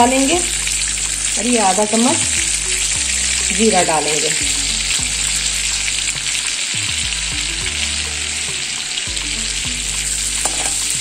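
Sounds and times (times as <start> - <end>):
seeds sizzling in hot oil: 0.0 - 11.0
metal spoon stirring: 10.2 - 11.0.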